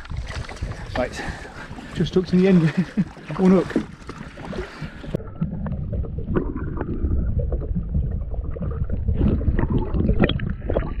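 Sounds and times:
underwater churning rumble: 0.0 - 11.0
gurgling bubbles: 2.6 - 11.0.

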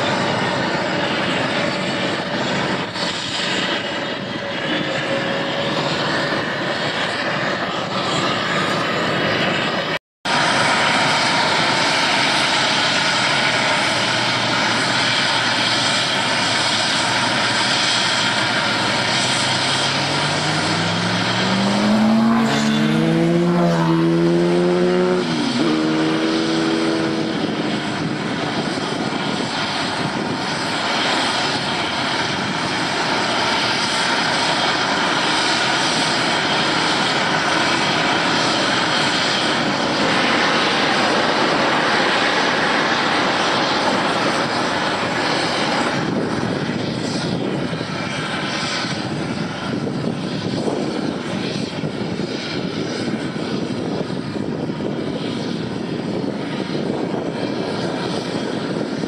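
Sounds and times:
heavy machinery din: 10.3 - 29.3.

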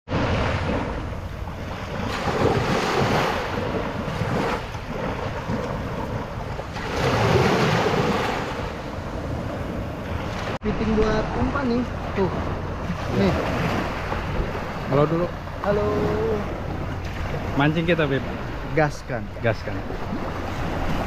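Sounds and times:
wind rumbling on microphone: 0.1 - 21.0
small waves breaking on pebbles: 1.7 - 8.8.

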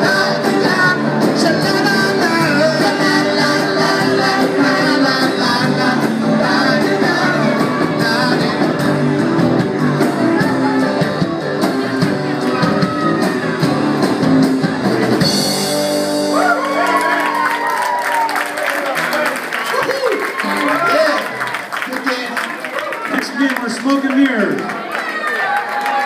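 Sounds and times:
man singing: 0.0 - 9.1
strummed acoustic guitars: 0.0 - 16.3
drum kit: 0.0 - 18.3.

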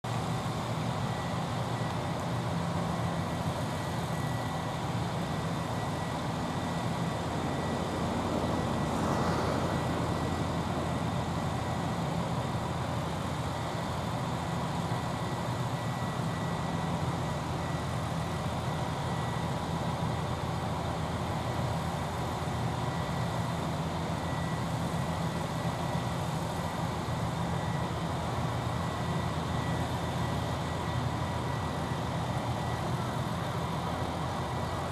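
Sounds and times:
low rumble of machinery: 0.1 - 34.9.

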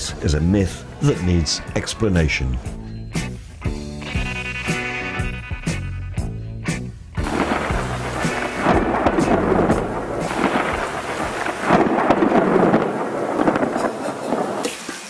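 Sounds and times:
rolling thunder: 7.2 - 14.6
heavy rain: 7.2 - 15.0.

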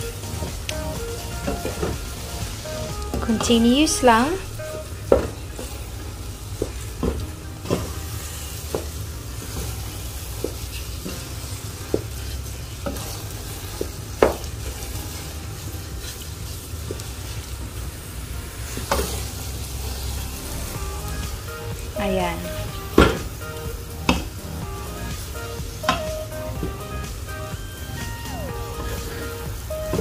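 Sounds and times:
steady low hum: 19.5 - 30.0.

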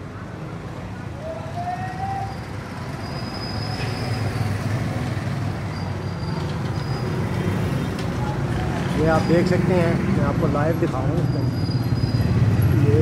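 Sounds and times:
vehicle engine rumbling: 0.6 - 13.0.

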